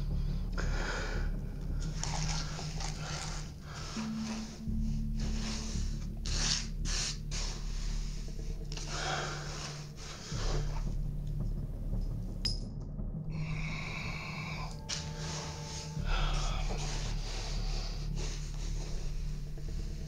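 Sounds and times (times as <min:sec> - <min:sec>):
breathing through the nose: 0:00.0 - 0:11.0, 0:13.3 - 0:20.0
low steady drone: 0:00.0 - 0:20.0
gloved hands wiping surface: 0:01.8 - 0:10.9, 0:14.8 - 0:20.0.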